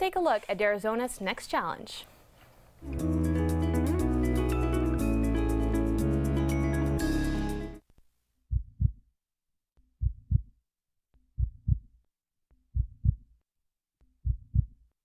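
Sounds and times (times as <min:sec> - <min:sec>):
heartbeat double thumps: 0:08.5 - 0:09.0, 0:10.0 - 0:10.5, 0:11.4 - 0:12.0, 0:12.7 - 0:13.3, 0:14.2 - 0:14.8.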